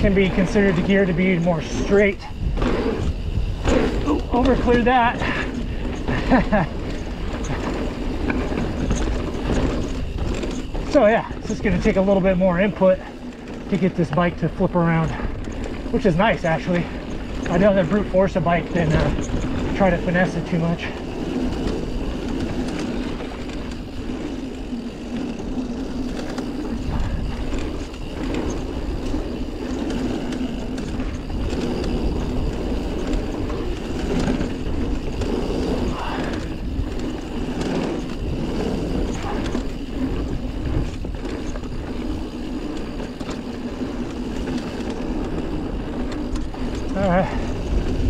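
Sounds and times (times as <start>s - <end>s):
bike knocking and rattling: 0.0s - 48.0s
bike tyres rumbling on dirt: 0.0s - 48.0s.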